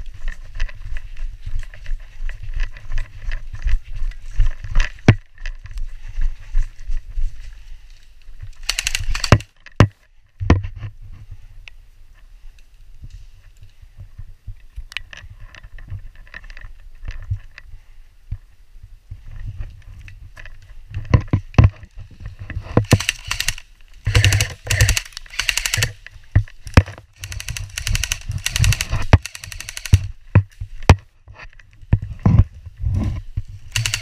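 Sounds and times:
airsoft guns firing rapid bursts: 0:08.6 - 0:09.5, 0:22.9 - 0:26.0, 0:26.7 - 0:30.1, 0:33.7 - 0:34.0.

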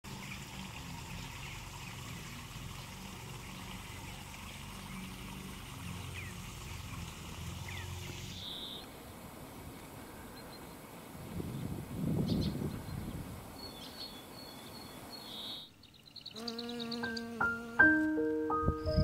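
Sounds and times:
water trickling: 0:00.1 - 0:09.0
short bird chirps: 0:08.3 - 0:08.9.

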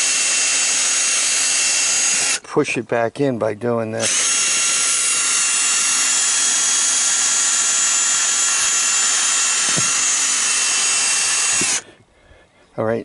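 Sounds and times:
electric drill whining: 0:00.0 - 0:02.4, 0:04.0 - 0:11.8.

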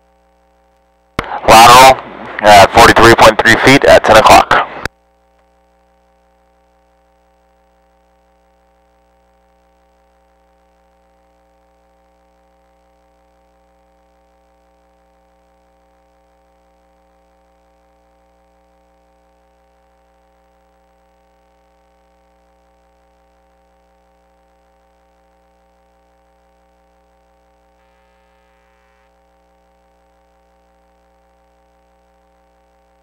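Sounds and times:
faint electrical hum: 0:00.0 - 0:33.0
thin high whine: 0:01.2 - 0:04.9, 0:14.5 - 0:33.0.

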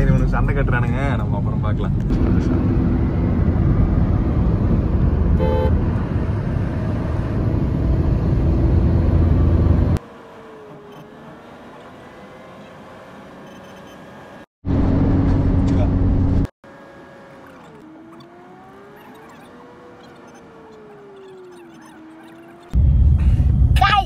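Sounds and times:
vehicle road and wind noise: 0:00.0 - 0:24.0
car horn toot: 0:05.4 - 0:05.8.

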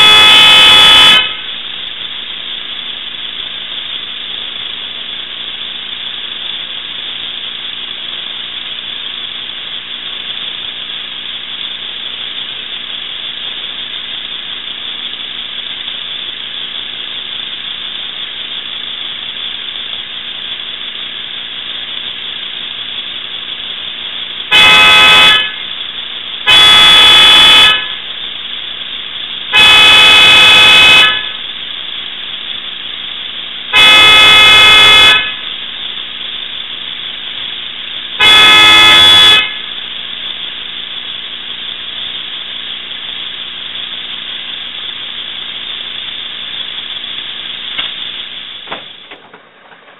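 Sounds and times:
car horn blasts: 0:00.0 - 0:01.4, 0:24.5 - 0:25.6, 0:26.5 - 0:28.0, 0:29.5 - 0:31.4, 0:33.7 - 0:35.4, 0:38.2 - 0:39.6.

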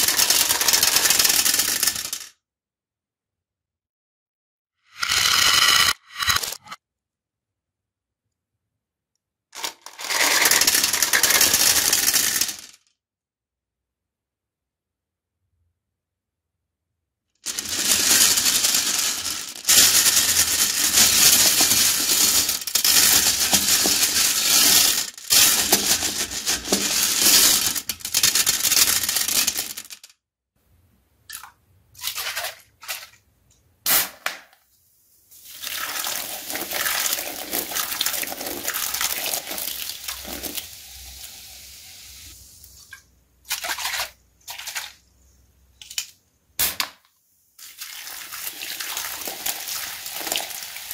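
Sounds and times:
candies rattling in toilet bowl: 0:00.0 - 0:02.3, 0:09.6 - 0:12.8, 0:17.4 - 0:30.1, 0:35.4 - 0:41.3, 0:47.6 - 0:50.9.

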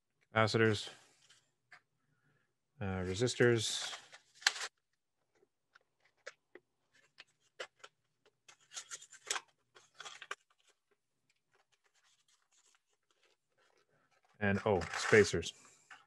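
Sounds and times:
hands rustling through packets: 0:03.2 - 0:16.0.

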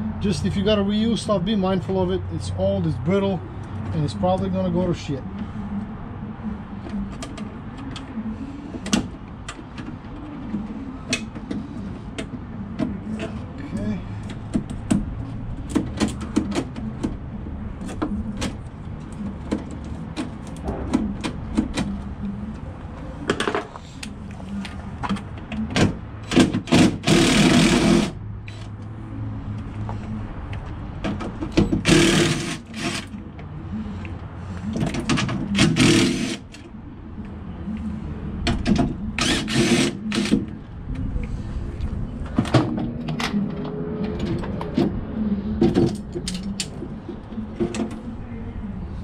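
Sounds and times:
cordless drill running: 0:26.7 - 0:28.1, 0:31.8 - 0:33.1, 0:35.6 - 0:36.4, 0:39.2 - 0:40.3.

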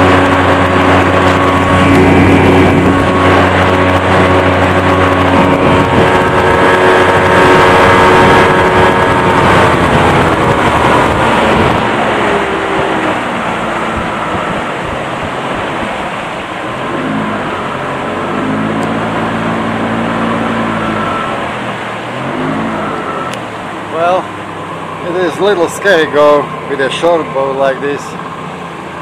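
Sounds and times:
outboard motor running: 0:00.0 - 0:29.0
water rushing along hull: 0:00.0 - 0:29.0.

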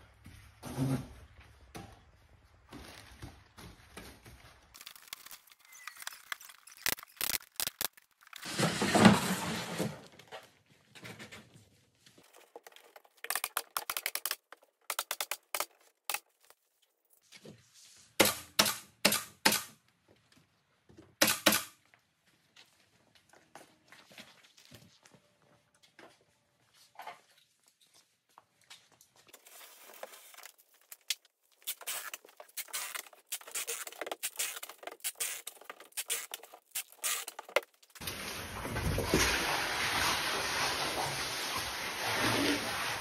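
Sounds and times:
staple gun shots: 0:21.2 - 0:21.7.

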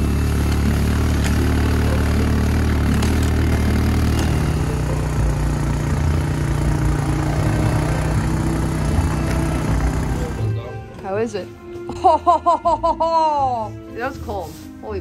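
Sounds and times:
rush of ride noise: 0:00.0 - 0:10.6
off-road vehicle engine running: 0:00.0 - 0:11.5.

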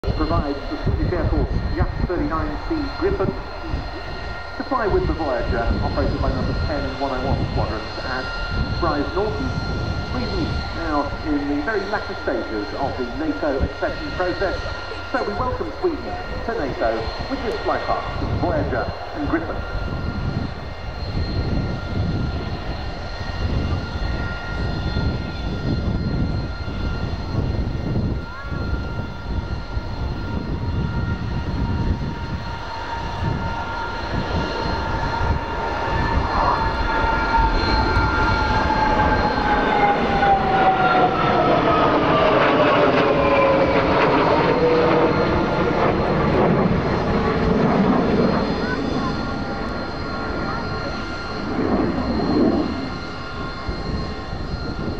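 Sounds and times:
jet engines flying past: 0:00.0 - 0:54.9.

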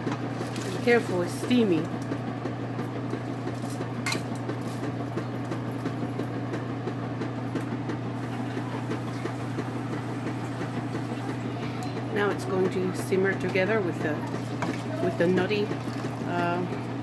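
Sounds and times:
steady low hum: 0:00.0 - 0:17.0
pot bubbling on stovetop: 0:08.2 - 0:17.0.

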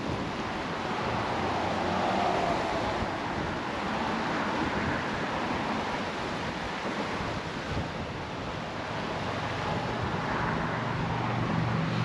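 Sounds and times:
choppy sea water: 0:00.0 - 0:12.0
wind on microphone: 0:00.0 - 0:12.0
passing car hum: 0:00.8 - 0:04.9, 0:09.1 - 0:12.0.

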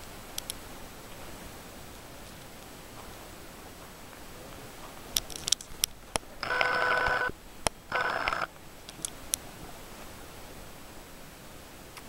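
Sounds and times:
sharp clicks: 0:00.3 - 0:00.6, 0:05.2 - 0:09.4
camcorder zoom motor whirring: 0:06.4 - 0:07.3, 0:07.9 - 0:08.5.

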